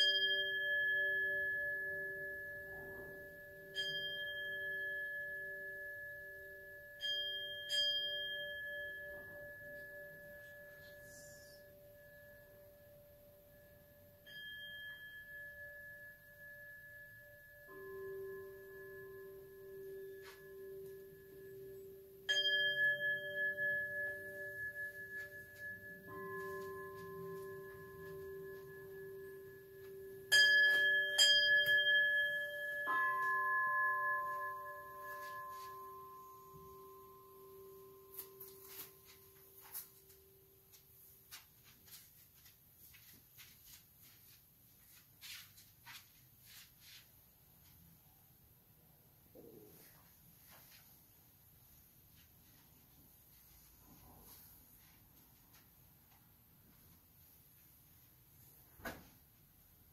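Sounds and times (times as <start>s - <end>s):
bowl bell ringing: 0.0s - 40.9s
higher pitched bowl bell: 0.0s - 41.2s.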